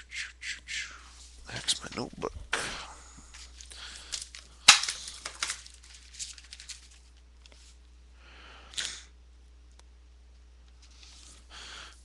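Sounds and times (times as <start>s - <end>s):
paper rustling: 3.4s - 7.8s.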